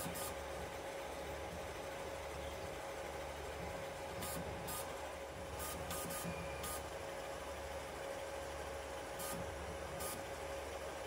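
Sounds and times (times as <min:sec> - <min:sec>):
printer fans and motors humming: 0:00.0 - 0:11.0.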